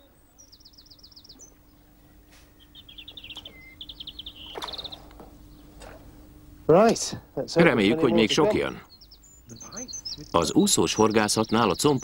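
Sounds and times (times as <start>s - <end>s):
faint steady hum: 0.0s - 12.0s
songbird trilling: 0.4s - 6.7s, 8.1s - 12.0s.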